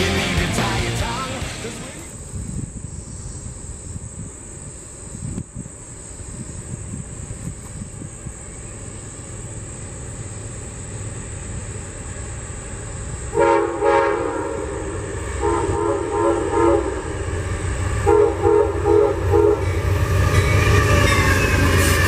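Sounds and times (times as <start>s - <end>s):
diesel locomotive rumble: 0.0s - 2.8s, 6.3s - 22.0s
train horn toots: 13.3s - 17.2s, 18.0s - 22.0s.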